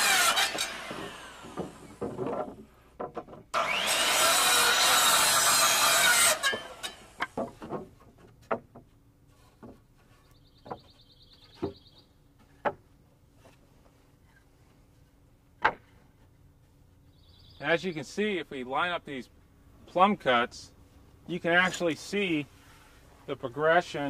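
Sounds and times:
circular saw cutting wood: 0.0 - 2.2, 3.5 - 7.4
wooden boards knocking: 0.6 - 3.6, 6.4 - 13.6, 15.6 - 16.2.

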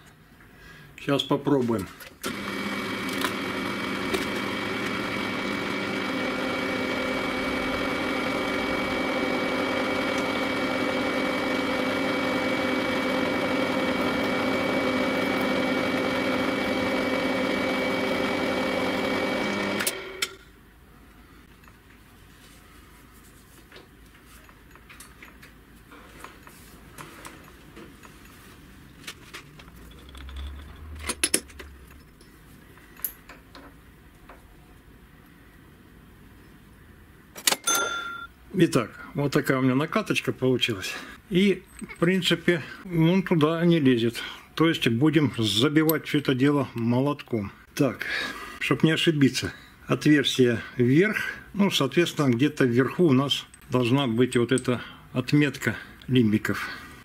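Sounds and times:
lathe running with even whine: 2.3 - 20.2.

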